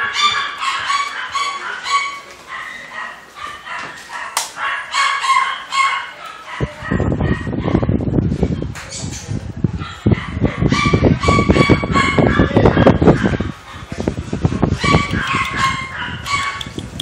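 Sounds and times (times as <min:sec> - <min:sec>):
dogs barking and yelping: 0:00.0 - 0:08.7, 0:09.7 - 0:17.0.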